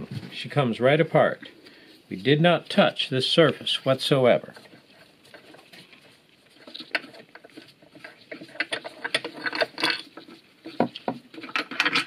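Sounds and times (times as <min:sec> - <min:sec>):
metal tools clicking and rattling: 0:04.5 - 0:12.0.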